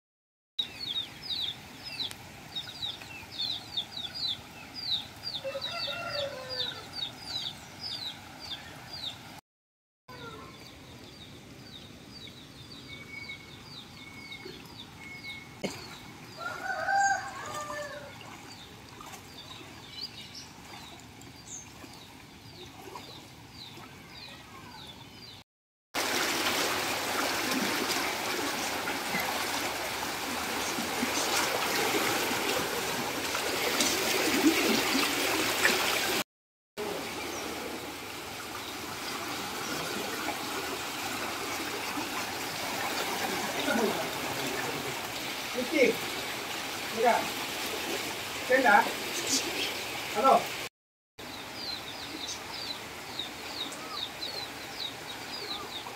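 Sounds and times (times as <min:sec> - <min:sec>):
rooster crowing: 0:05.4 - 0:06.9, 0:16.4 - 0:18.1
floodwater rushing: 0:14.6 - 0:24.2, 0:26.0 - 0:36.2, 0:36.8 - 0:50.7.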